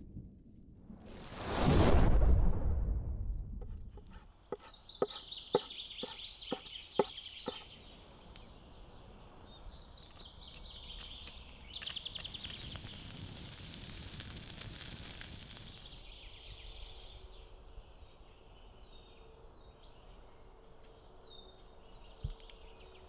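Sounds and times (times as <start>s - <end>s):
birds chirping: 3.9s - 13.4s
bird trill: 4.5s - 7.7s.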